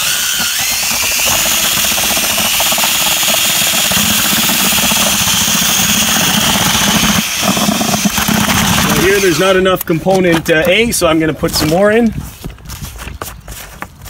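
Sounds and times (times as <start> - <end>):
electric drill mixing mortar: 0.0 - 10.6.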